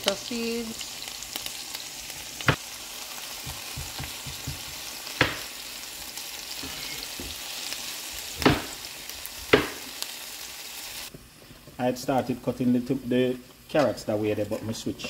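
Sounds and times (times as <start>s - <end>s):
vegetables sizzling in oil: 0.0s - 15.0s
spatula knocking against pan: 3.4s - 5.4s.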